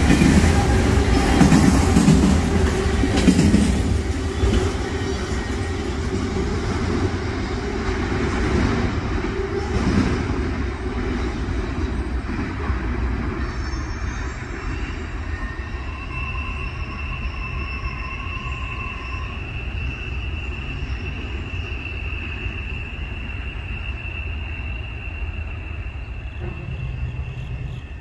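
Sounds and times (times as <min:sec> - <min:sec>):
train wheels rumbling on rails: 0:00.0 - 0:28.0
high thin wheel squeal: 0:13.5 - 0:28.0.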